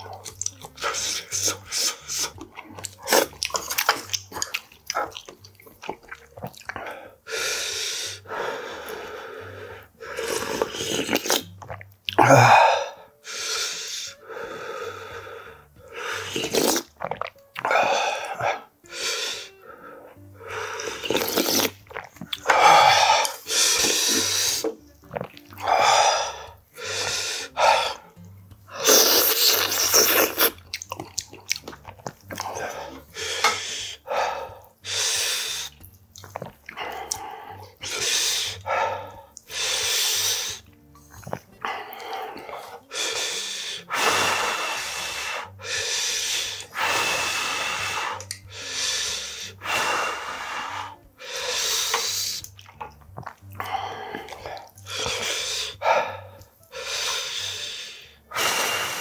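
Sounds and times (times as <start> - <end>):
chewing: 0.0 - 7.0, 10.2 - 12.2, 16.3 - 18.6, 20.8 - 25.8, 28.2 - 33.6, 35.6 - 39.6, 40.5 - 42.9, 51.8 - 55.4
man slurping noodles: 0.7 - 4.2, 10.1 - 14.8, 15.9 - 28.0, 28.7 - 30.6, 31.7 - 40.7, 41.3 - 59.0
man blowing hissy puffs: 0.8 - 2.4, 15.9 - 16.9, 22.6 - 24.8, 25.8 - 28.0, 28.7 - 30.5, 33.1 - 34.1, 34.8 - 35.8, 37.8 - 40.6, 42.9 - 52.5, 54.8 - 59.0.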